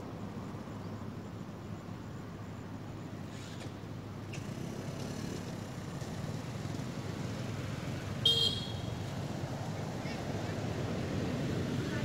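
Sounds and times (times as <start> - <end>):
distant traffic rumble: 2.8 - 12.0
high-pitched vehicle horn toot: 8.2 - 8.9.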